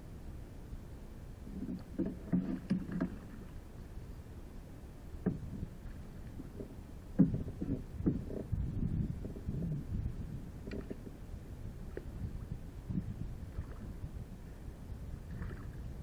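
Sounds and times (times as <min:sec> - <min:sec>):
kayak hull knocks and creaks: 0:01.5 - 0:03.4, 0:05.2 - 0:08.6, 0:10.6 - 0:11.1.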